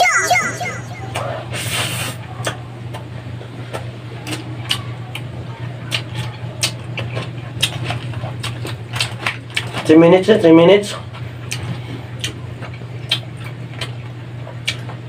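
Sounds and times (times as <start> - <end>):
mouth clicks and smacks chewing: 12.2 - 14.0, 14.6 - 15.0.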